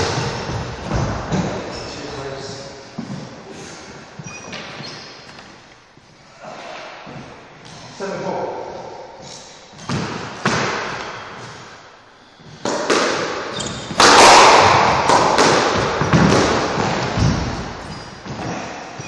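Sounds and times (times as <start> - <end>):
squash ball hitting rackets and walls: 0.0 - 1.8, 9.2 - 11.8, 12.4 - 19.0
shoe squeaks on wooden floor: 0.0 - 6.2, 13.5 - 14.0, 17.2 - 19.0.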